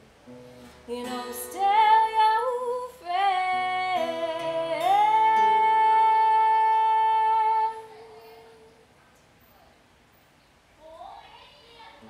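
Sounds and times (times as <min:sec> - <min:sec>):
acoustic guitar low notes: 0:00.0 - 0:09.4
woman singing high note: 0:00.9 - 0:08.8.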